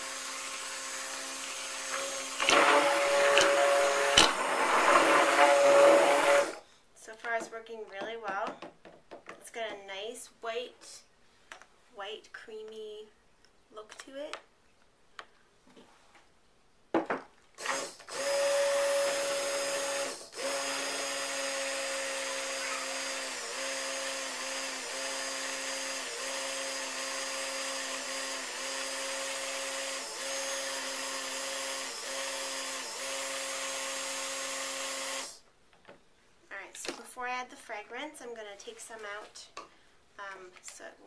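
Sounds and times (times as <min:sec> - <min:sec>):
stick blender motor whine: 0:00.0 - 0:06.6, 0:17.6 - 0:35.4.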